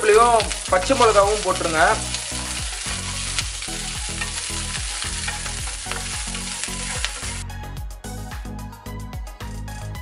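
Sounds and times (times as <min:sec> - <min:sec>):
leaves sizzling in hot oil: 0:00.0 - 0:07.4
wooden spatula stirring: 0:00.5 - 0:07.4.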